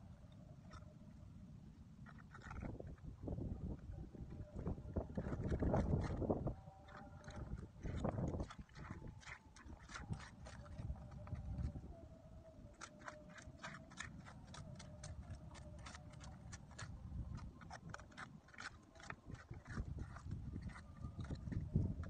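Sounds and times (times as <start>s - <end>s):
faint steady hum: 0.0s - 22.0s
wind rumbling: 0.0s - 22.0s
clam shells and stones clicking: 12.8s - 21.6s.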